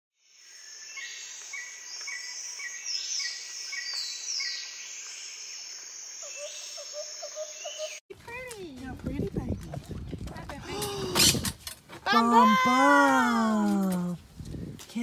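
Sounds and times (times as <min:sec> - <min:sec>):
high insect drone: 0:00.2 - 0:08.0
bird chirps: 0:00.4 - 0:08.0.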